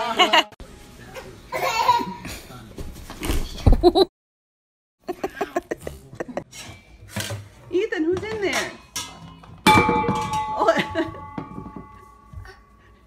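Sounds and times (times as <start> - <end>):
people laughing: 0.0 - 0.6, 5.0 - 6.5.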